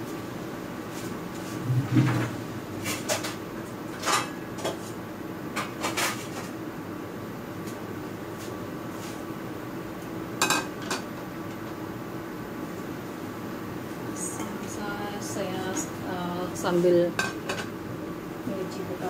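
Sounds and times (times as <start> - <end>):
steady hum: 0.0 - 19.0
dishes and utensils clinking: 10.4 - 11.1.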